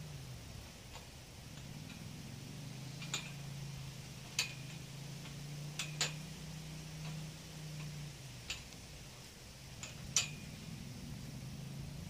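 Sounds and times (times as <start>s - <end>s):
low steady hum: 0.0s - 12.0s
metal on metal clicks: 7.8s - 8.9s, 9.7s - 10.6s.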